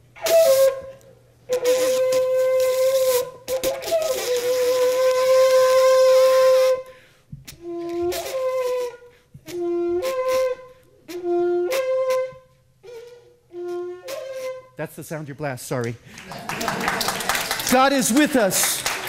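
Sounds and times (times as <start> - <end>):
shofar blasts: 0.2 - 6.9, 7.5 - 14.8.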